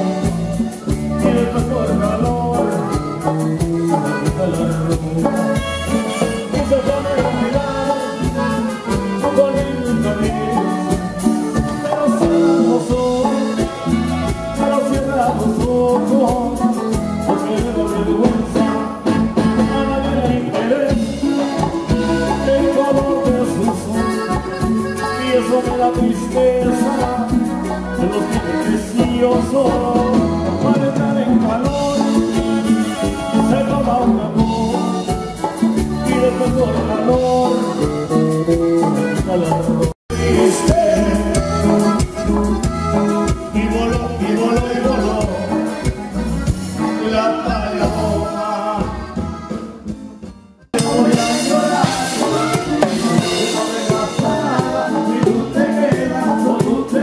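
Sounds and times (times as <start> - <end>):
accordion melody: 0.0 - 57.0
drums and bass: 0.0 - 57.0
live band playing: 0.0 - 57.0.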